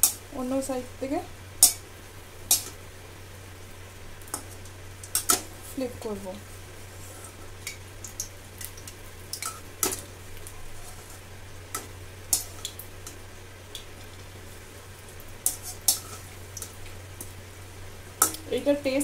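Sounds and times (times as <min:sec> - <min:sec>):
slices frying in hot oil: 0:00.0 - 0:19.0
metal spatula clicking on pan: 0:02.5 - 0:02.8, 0:18.2 - 0:18.5.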